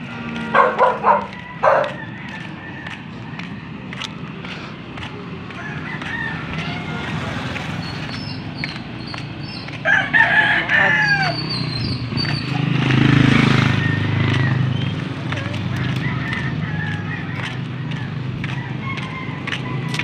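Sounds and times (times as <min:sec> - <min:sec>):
rooster crowing: 0:00.3 - 0:03.3, 0:05.5 - 0:07.5, 0:09.8 - 0:11.6, 0:13.5 - 0:14.9, 0:15.7 - 0:20.0.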